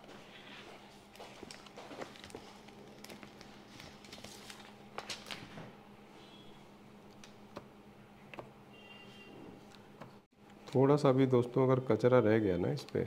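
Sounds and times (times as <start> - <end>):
plastic film rustling and clicking: 1.3 - 5.7
plastic crinkles: 1.4 - 5.5.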